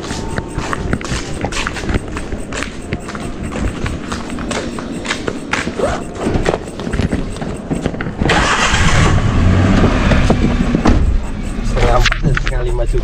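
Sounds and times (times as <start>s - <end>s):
vehicle engine starting and running: 0.8s - 13.0s
scattered knocks: 9.7s - 13.0s.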